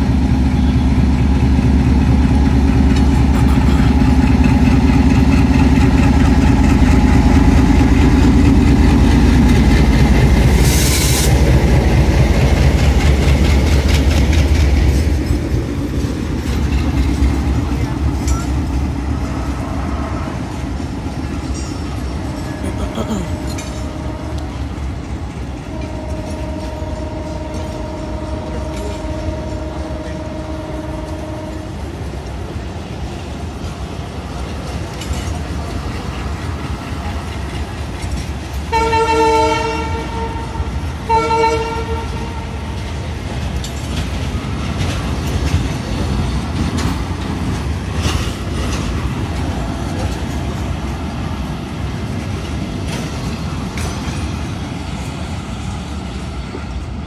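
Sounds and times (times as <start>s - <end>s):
train coaches rumbling past: 0.0s - 57.0s
train wheel clatter: 0.0s - 57.0s
train horn blasts: 22.2s - 24.8s, 25.6s - 31.9s, 38.7s - 42.8s.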